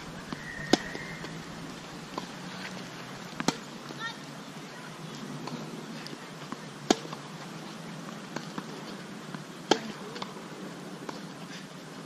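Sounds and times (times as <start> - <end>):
tennis ball bouncing: 0.1 - 4.0, 6.3 - 10.4
racket hitting tennis ball: 0.2 - 2.7, 3.4 - 4.0, 6.5 - 7.3, 8.2 - 10.3.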